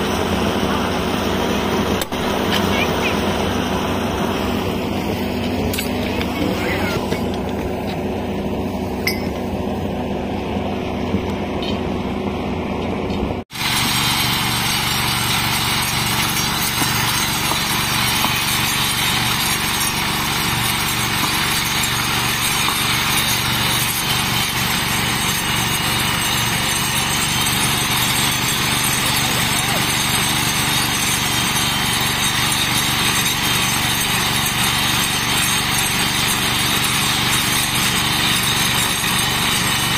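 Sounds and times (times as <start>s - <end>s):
engine hum: 0.0s - 36.5s
rail grinder grinding: 0.0s - 39.9s
metal tools clinking on rail: 5.3s - 8.0s, 9.0s - 9.5s.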